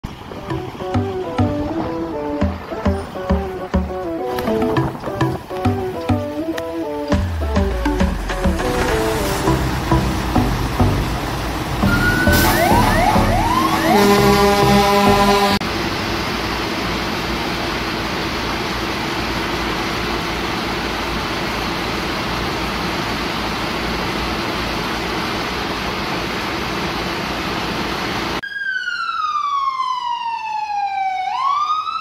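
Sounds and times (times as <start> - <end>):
fire engine siren wailing: 0.0 - 16.2, 28.4 - 32.0.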